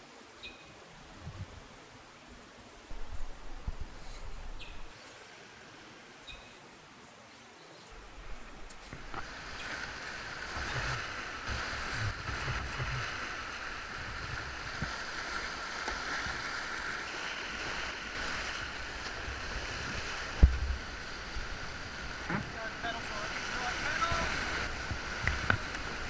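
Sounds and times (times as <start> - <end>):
whitewater rushing: 7.9 - 26.0.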